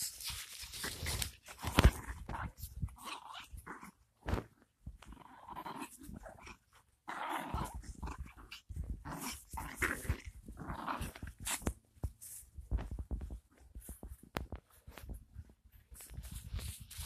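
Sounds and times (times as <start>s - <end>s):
small dog growling: 0.7s - 11.6s.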